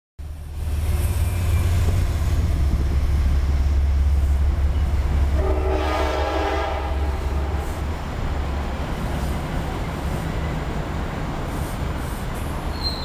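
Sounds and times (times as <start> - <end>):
passenger train rumbling past: 0.2 - 13.0
multi-tone train horn: 5.3 - 7.8.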